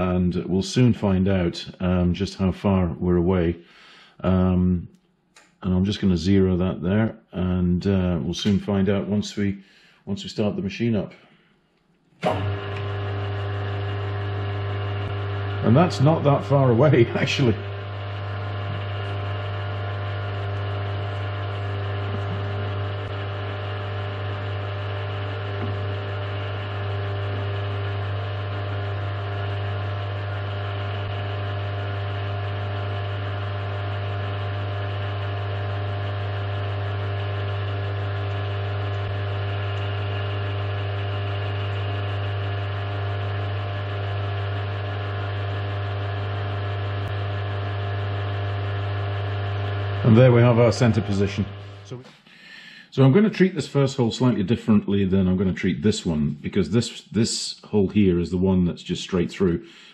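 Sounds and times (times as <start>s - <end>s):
milling machine motor humming: 12.2s - 52.2s.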